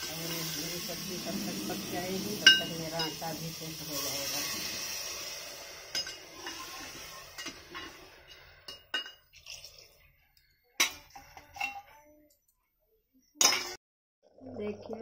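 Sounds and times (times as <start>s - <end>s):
hiss of water added: 0.0s - 8.7s
metal utensils clinking on pot: 5.9s - 10.0s, 10.7s - 12.0s, 13.4s - 13.8s.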